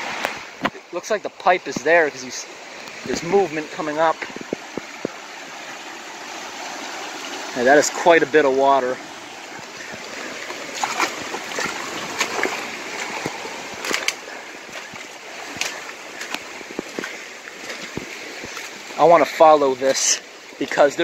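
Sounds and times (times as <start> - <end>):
creek rushing: 0.0 - 21.0
branches rustling: 9.0 - 19.0
twigs snapping: 10.8 - 14.2.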